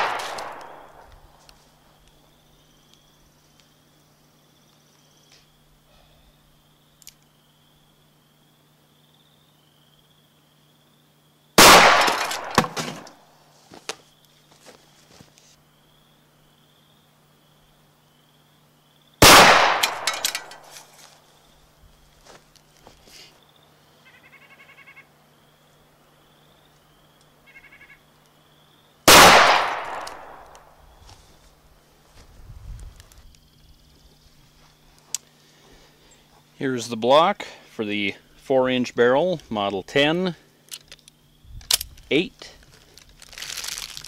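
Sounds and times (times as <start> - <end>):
revolver gunshot echoing: 0.0 - 1.1, 11.6 - 13.1, 19.2 - 20.6, 29.1 - 30.8
insects chirping: 0.0 - 44.0
small ticks: 7.0 - 7.3
bird trilling: 24.0 - 25.1, 27.5 - 28.0.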